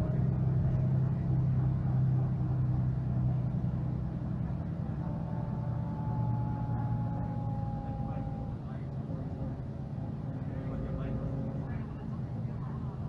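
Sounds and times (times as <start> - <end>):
bus diesel engine humming: 0.0 - 13.0
thin whine: 4.4 - 13.0.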